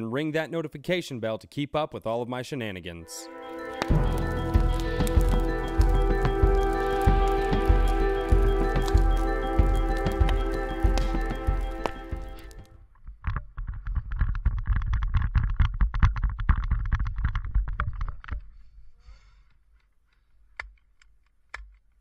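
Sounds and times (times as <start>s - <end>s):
intro music: 3.2s - 12.7s
footsteps crunching on forest floor: 3.5s - 12.6s.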